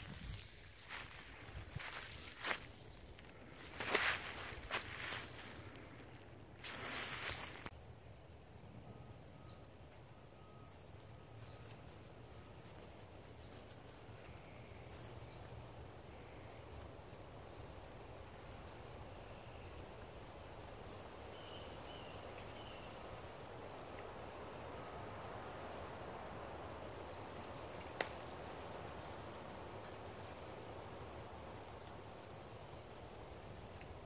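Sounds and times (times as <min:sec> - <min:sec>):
bird chirps: 0:08.9 - 0:09.7.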